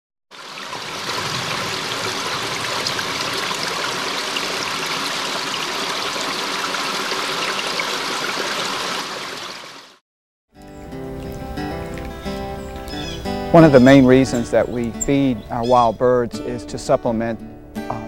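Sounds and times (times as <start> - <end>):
river water running over rocks: 0.3 - 10.0, 10.8 - 14.4.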